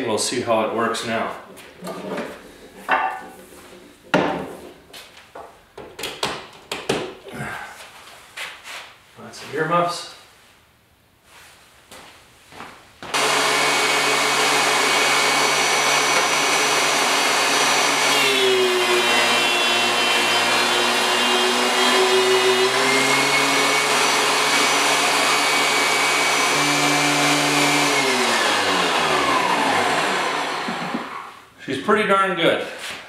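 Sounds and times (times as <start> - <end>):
planer cutting board: 13.1 - 31.3
thickness planer running: 13.2 - 31.3.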